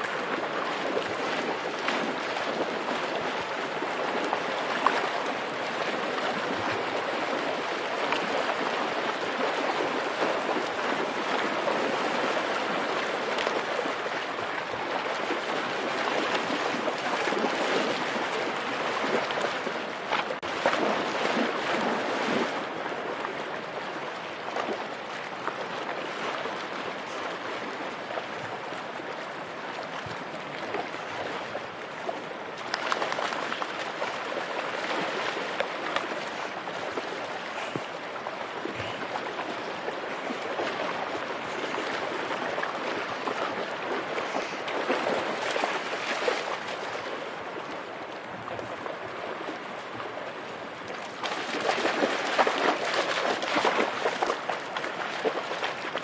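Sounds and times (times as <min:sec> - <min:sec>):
dog splashing through water: 0:00.0 - 0:23.3, 0:32.6 - 0:47.7, 0:50.7 - 0:56.0.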